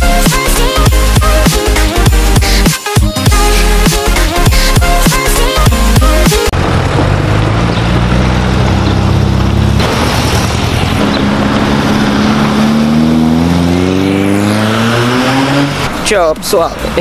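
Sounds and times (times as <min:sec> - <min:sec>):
car engine accelerating: 0:06.0 - 0:17.0
cars driving past: 0:06.6 - 0:17.0.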